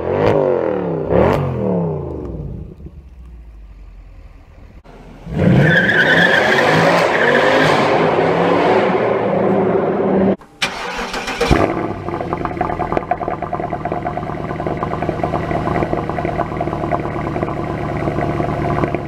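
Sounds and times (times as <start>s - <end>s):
car engine accelerating hard: 0.0s - 19.0s
car engine starting: 0.0s - 19.0s
car engine idling: 1.6s - 6.1s, 10.6s - 19.0s.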